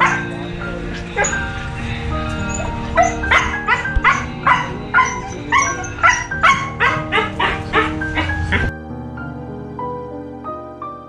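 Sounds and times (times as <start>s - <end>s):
dog yipping barks: 0.0s - 0.4s, 1.2s - 1.4s, 2.4s - 8.7s
background music: 0.0s - 11.0s.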